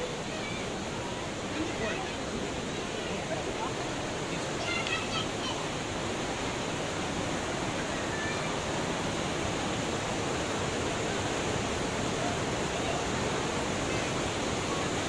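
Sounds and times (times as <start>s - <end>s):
waterfall pouring over rocks: 0.0s - 15.0s.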